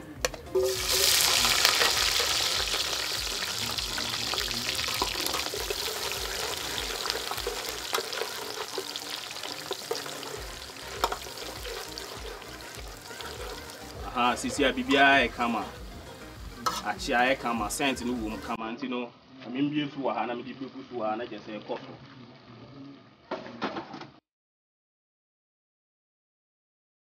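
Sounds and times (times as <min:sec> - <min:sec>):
onions sizzling in hot oil: 0:00.0 - 0:18.6, 0:19.6 - 0:22.5
spatula scraping a pot: 0:04.3 - 0:13.8, 0:16.6 - 0:17.2.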